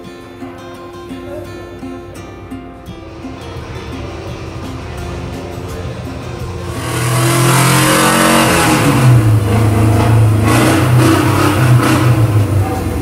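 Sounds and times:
car engine revving: 2.8 - 13.0.

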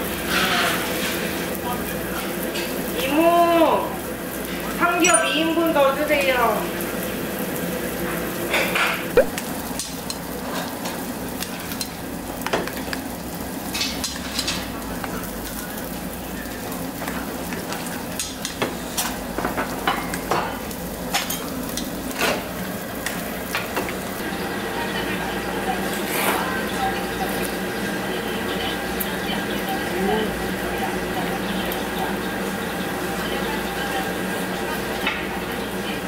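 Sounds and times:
pork sizzling on grill: 0.0 - 36.0
chopsticks clinking steel bowl: 5.0 - 5.4.

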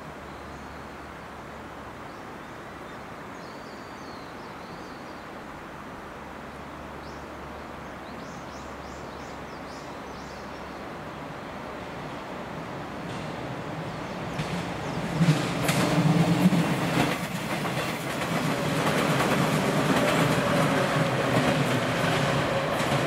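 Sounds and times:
small birds chirping: 7.0 - 11.2, 13.0 - 15.7
electric train approaching: 11.6 - 23.0.

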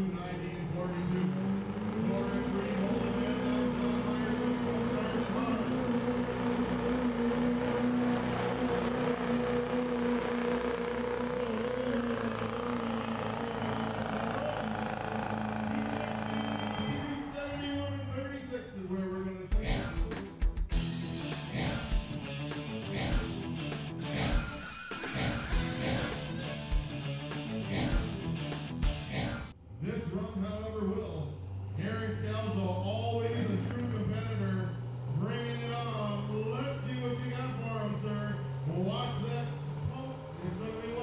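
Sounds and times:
diesel engine at full throttle: 0.0 - 41.0
rock music with guitar: 19.6 - 29.3.

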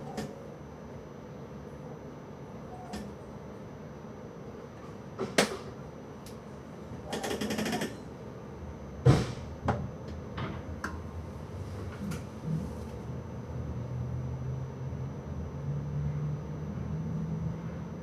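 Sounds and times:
train low rumble: 0.0 - 18.0.

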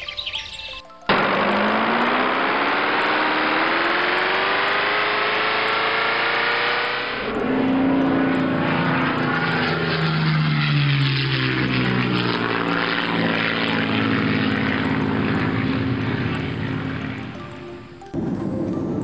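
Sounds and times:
airliner engine drone: 0.0 - 19.0.

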